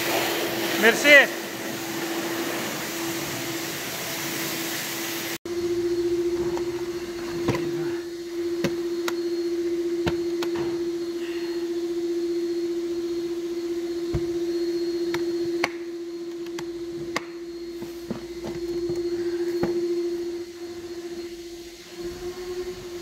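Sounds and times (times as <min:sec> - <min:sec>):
machine hum: 0:05.3 - 0:23.0.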